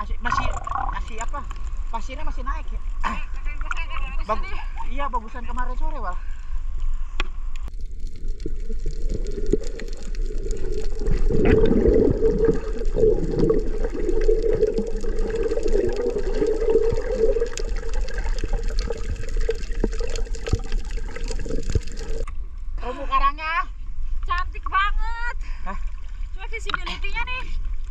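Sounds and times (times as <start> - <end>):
sea water sloshing and bubbling: 0.2 - 2.0, 7.7 - 22.3.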